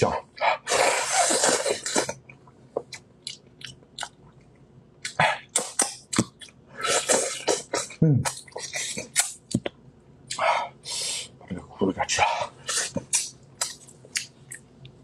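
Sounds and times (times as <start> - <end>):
wet slurping and sucking: 0.7 - 2.2, 6.8 - 7.9
lip smacks and clicks: 2.0 - 7.6, 8.2 - 10.4, 12.7 - 15.0.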